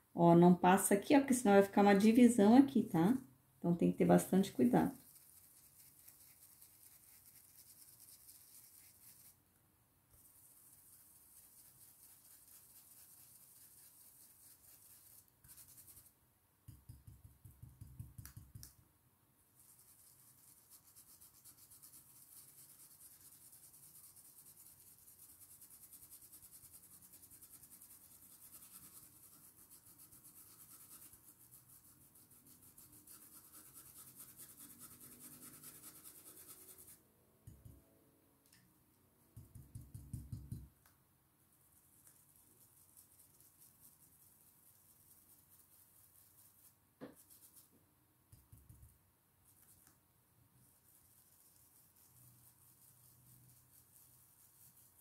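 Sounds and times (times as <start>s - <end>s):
brush rubbing on stencil: 4.4s - 9.4s, 10.1s - 18.4s, 19.6s - 37.7s, 41.5s - 47.7s, 49.5s - 50.0s, 50.6s - 55.0s.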